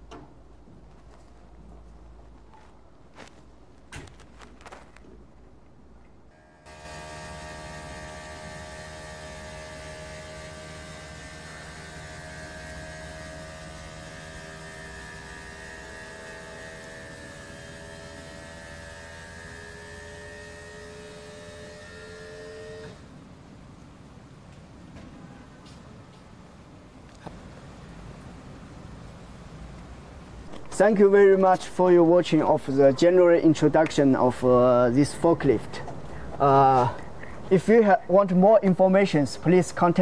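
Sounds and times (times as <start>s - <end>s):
hydraulic pump whining: 6.4s - 23.1s.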